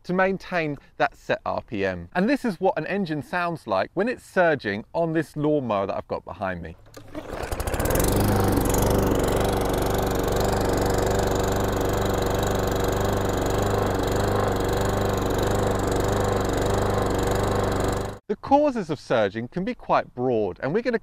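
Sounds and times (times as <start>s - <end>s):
lawn mower engine surging: 6.8s - 18.2s.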